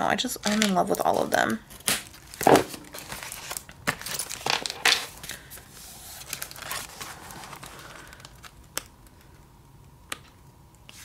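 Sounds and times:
paper pages rustling: 0.5 - 8.6.

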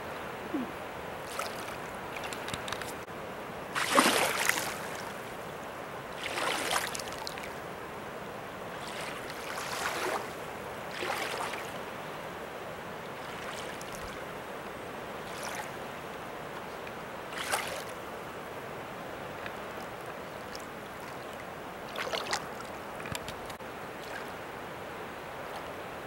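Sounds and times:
rushing water: 0.0 - 26.0
water splashes: 0.4 - 3.1, 3.7 - 5.5, 6.1 - 7.6, 8.7 - 12.0, 13.1 - 14.4, 15.1 - 18.3, 19.2 - 26.0.

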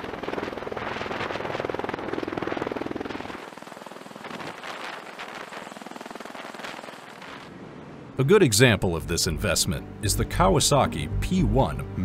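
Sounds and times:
tiltrotor aircraft rotors beating: 0.0 - 8.1.

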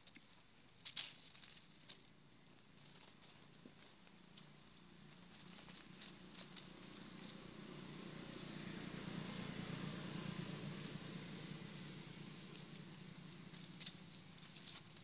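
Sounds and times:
dry leaves rustling: 0.8 - 15.0
distant vehicle passing: 4.6 - 15.0.

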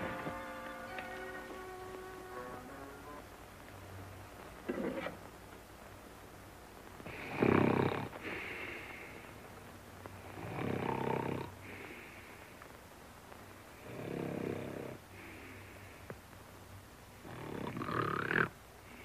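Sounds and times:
soft high breath out: 8.2 - 9.3.

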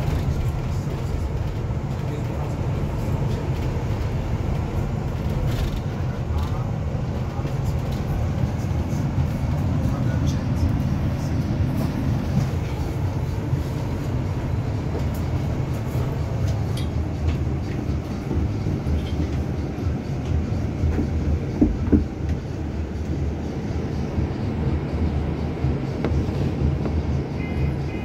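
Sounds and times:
bus engine and road noise: 0.0 - 28.0
knocks: 21.6 - 22.1.

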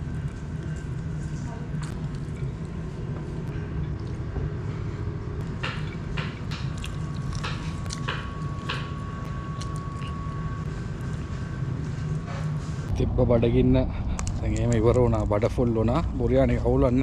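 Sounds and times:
low hum: 0.0 - 17.0
person chewing and smacking: 5.4 - 11.2.

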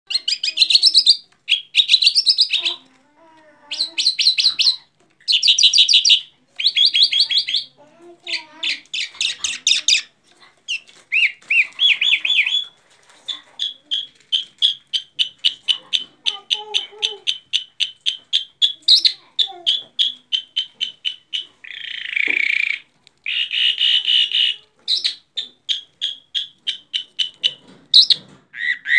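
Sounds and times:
caged bird singing trilled notes: 0.1 - 2.8, 13.6 - 28.9
bird chirps: 0.1 - 2.9, 3.6 - 10.1, 10.7 - 28.9.

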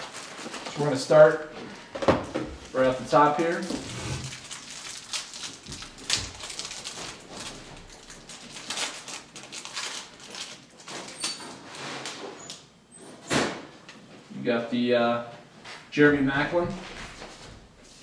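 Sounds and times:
card pack being torn open: 3.4 - 11.2.

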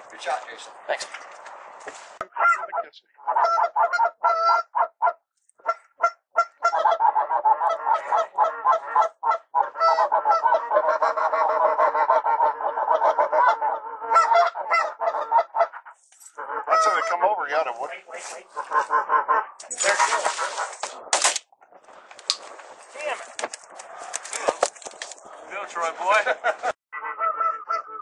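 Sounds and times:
geese honking: 2.2 - 21.1, 25.2 - 28.0.

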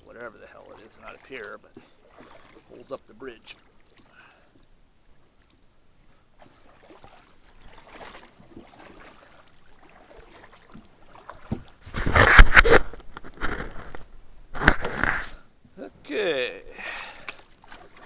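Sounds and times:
water splashing and dripping: 0.0 - 4.6, 6.4 - 11.8, 16.8 - 18.0
kayak paddle strokes: 0.0 - 15.4, 16.1 - 18.0
kayak knocking and scraping on concrete: 10.6 - 15.4.

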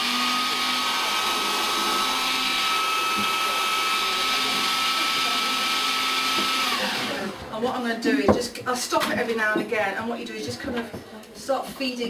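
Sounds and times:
blender running: 0.0 - 7.8.

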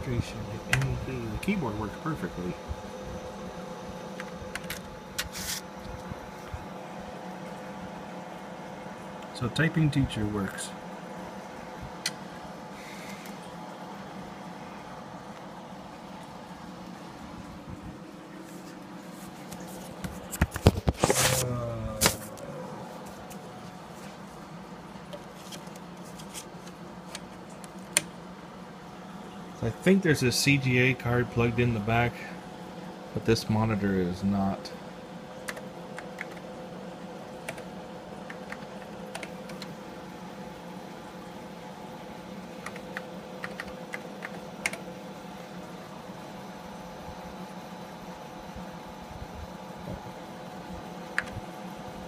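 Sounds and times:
computer fan humming: 0.0 - 52.0
keyboard keys clicking: 35.5 - 36.4, 37.5 - 39.7, 42.6 - 44.8.

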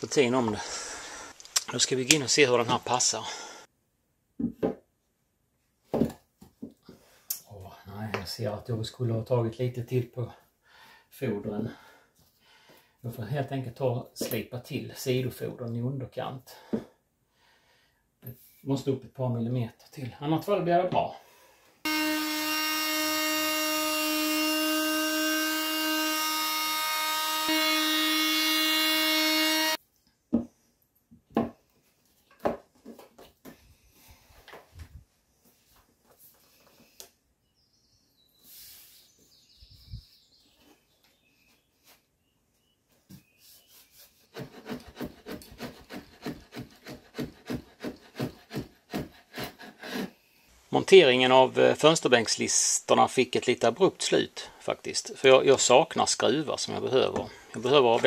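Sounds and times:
wooden knocks and taps: 4.4 - 4.8, 30.3 - 31.6, 32.3 - 33.6
oscillating tool sanding wood: 21.9 - 29.8
file rasping on wood: 44.2 - 50.1.

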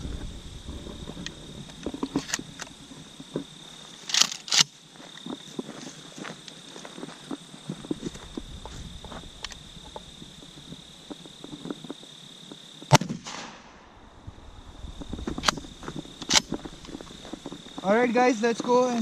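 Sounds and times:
sharp clicks: 4.1 - 4.7, 15.2 - 17.6
shotgun blast: 12.9 - 14.0.

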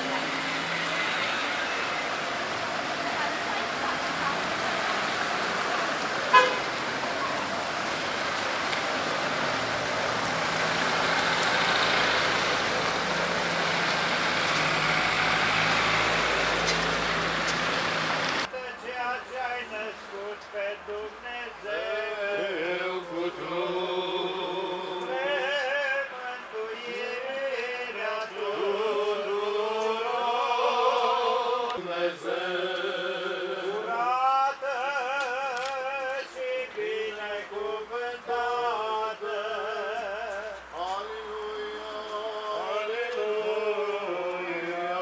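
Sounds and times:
men singing slow chant: 18.6 - 45.0.

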